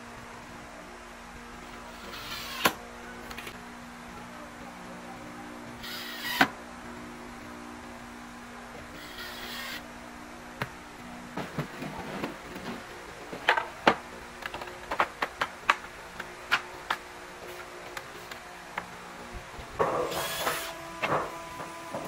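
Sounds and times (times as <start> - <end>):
cordless drill running: 2.0 - 2.7, 5.8 - 6.4, 9.0 - 9.8, 20.2 - 20.8.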